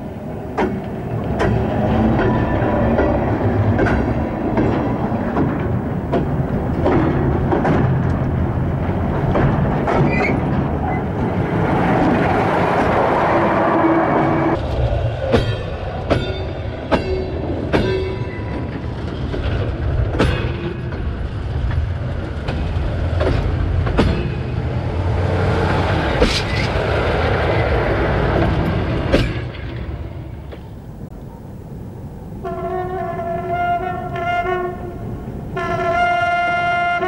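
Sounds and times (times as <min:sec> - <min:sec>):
train wheels rumbling: 0:00.0 - 0:37.0
metallic clacks of wheels on rail joint: 0:00.5 - 0:13.0, 0:14.5 - 0:26.9, 0:28.3 - 0:30.9.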